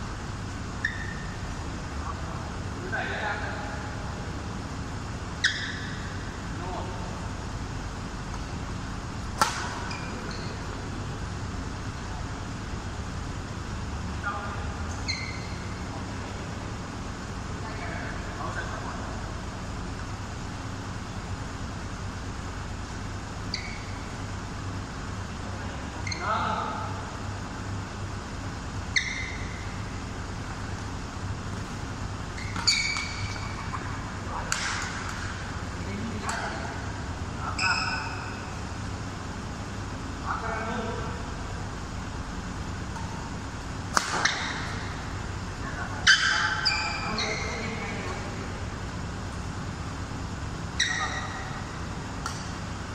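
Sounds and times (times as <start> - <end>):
low background hum: 0.0 - 52.9
racket striking shuttlecock: 9.3 - 10.6, 32.4 - 35.4, 43.9 - 44.9, 52.1 - 52.7.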